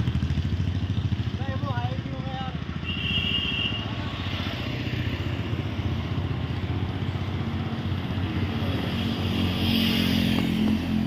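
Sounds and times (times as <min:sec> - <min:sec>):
motorcycle engine running: 0:00.0 - 0:03.0.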